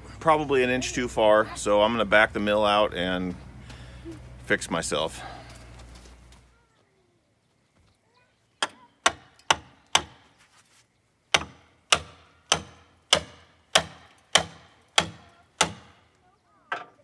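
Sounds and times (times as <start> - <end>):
hammer striking log: 8.6 - 10.3, 11.3 - 16.0.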